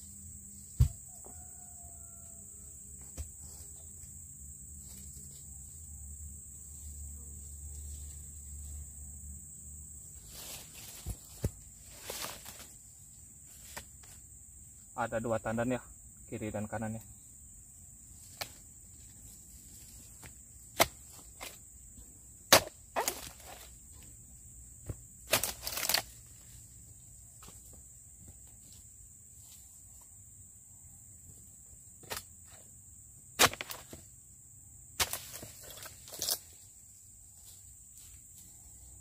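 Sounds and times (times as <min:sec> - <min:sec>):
high-pitched insect drone: 0:00.0 - 0:13.3
chisel chopping palm stalks: 0:20.2 - 0:21.6, 0:22.5 - 0:23.7, 0:24.8 - 0:26.2, 0:32.0 - 0:32.3, 0:33.4 - 0:34.0, 0:35.0 - 0:36.5.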